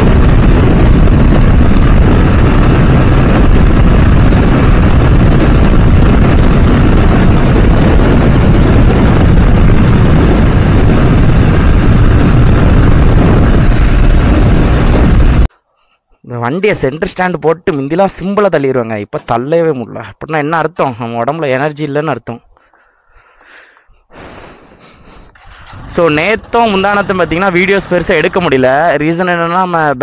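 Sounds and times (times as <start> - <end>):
motorcycle running rumble: 0.0 - 15.5, 25.4 - 28.6
wind rushing over microphone: 0.0 - 15.5, 24.2 - 29.0.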